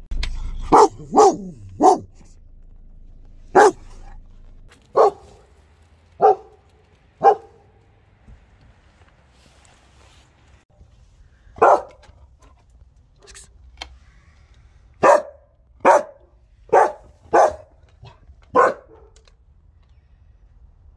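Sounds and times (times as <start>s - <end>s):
large dog barking: 0.5s - 2.3s, 3.5s - 7.7s, 11.6s - 12.1s, 15.0s - 19.2s.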